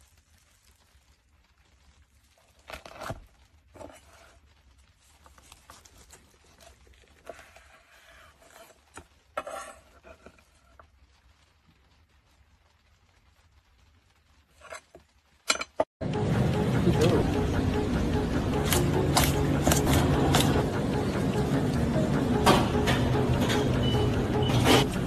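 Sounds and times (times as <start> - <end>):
knife scraping wooden board: 7.3 - 10.4.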